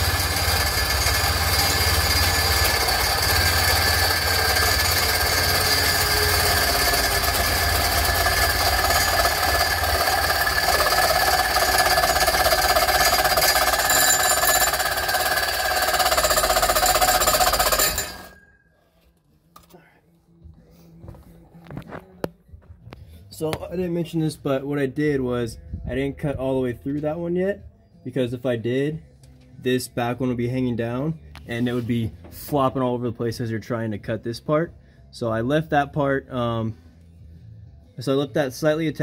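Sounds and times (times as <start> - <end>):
power saw cutting metal pipe: 0.0 - 18.5.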